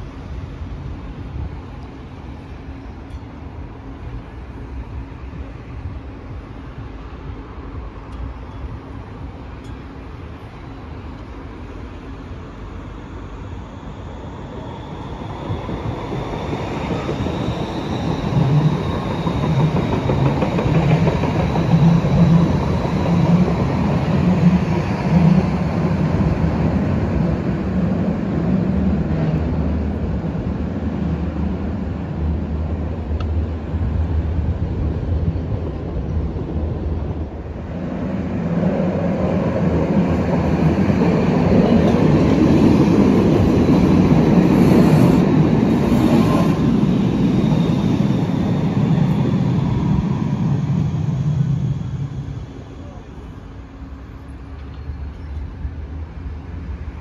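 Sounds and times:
faint high whine: 0.0 - 20.3, 43.4 - 57.0
light rail train rumbling past: 0.0 - 57.0.

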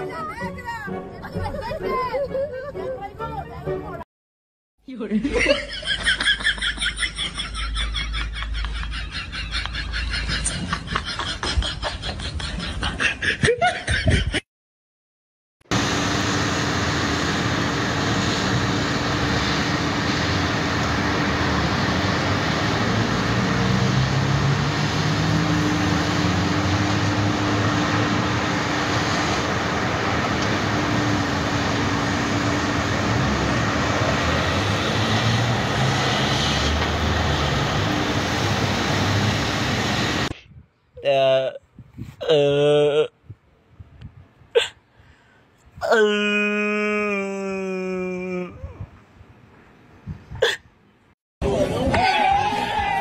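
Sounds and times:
excavator diesel engine drone: 15.7 - 40.3.

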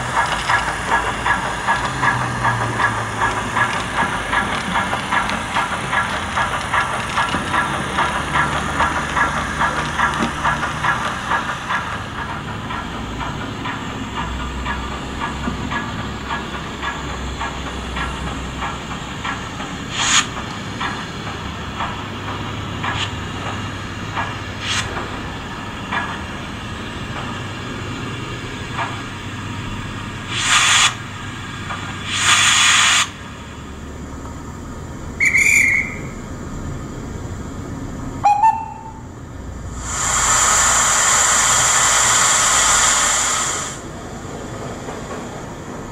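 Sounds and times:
steam blasts: 0.0 - 45.9
steam hissing: 0.0 - 45.9
steam locomotive exhaust chuffs: 0.0 - 45.9
train whistle: 35.2 - 36.2, 38.2 - 39.1.

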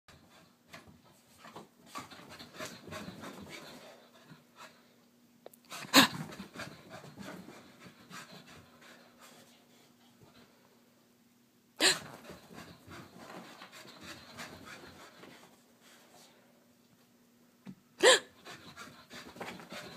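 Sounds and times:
dog panting: 0.1 - 4.8, 5.7 - 10.6, 11.8 - 16.1, 18.4 - 19.9.

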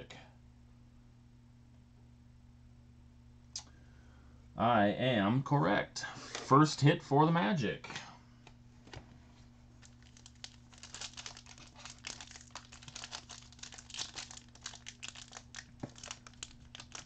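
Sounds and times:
foil wrapper crinkling: 9.7 - 17.0.

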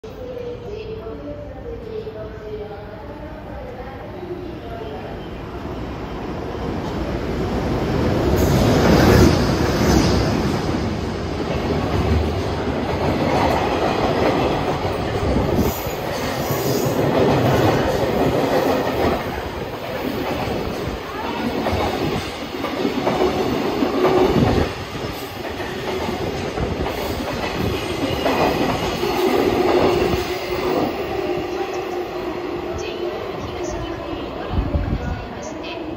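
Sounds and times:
freight train passing: 0.1 - 35.9.

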